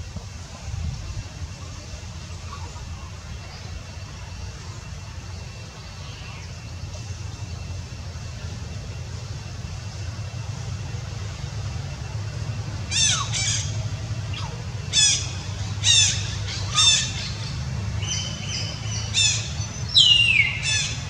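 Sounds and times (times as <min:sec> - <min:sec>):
steady low rumble: 0:00.0 - 0:21.0.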